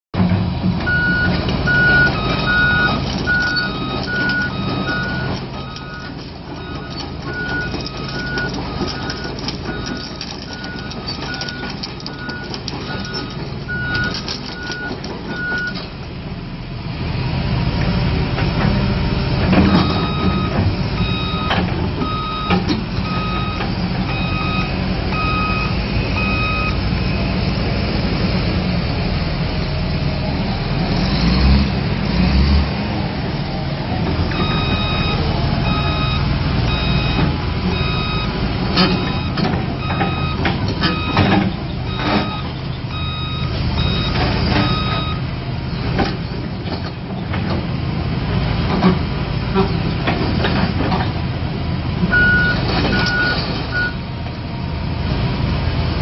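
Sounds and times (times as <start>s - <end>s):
engine knocks: 0.2s - 16.0s, 34.0s - 45.2s
diesel excavator engine under load: 0.2s - 56.0s
travel alarm beeping: 0.9s - 15.8s, 19.8s - 26.8s, 34.4s - 38.4s, 39.0s - 45.2s, 52.2s - 54.0s.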